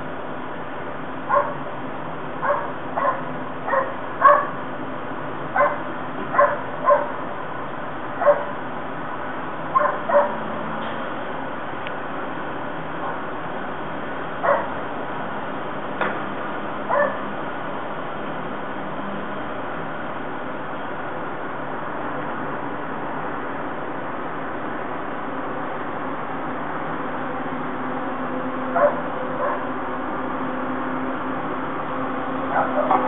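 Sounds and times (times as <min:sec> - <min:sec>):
steady background hum: 0:00.0 - 0:33.0
dogs barking through window: 0:01.3 - 0:01.6, 0:02.4 - 0:04.6, 0:05.5 - 0:07.3, 0:08.2 - 0:08.6, 0:09.7 - 0:10.4, 0:14.4 - 0:14.8, 0:16.9 - 0:17.3, 0:28.7 - 0:29.8, 0:32.4 - 0:33.0.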